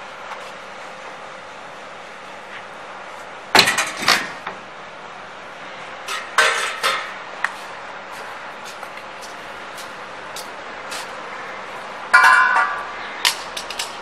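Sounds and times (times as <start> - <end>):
metal frame knocks and clanks: 3.6 - 4.4, 6.1 - 7.2, 12.2 - 14.0.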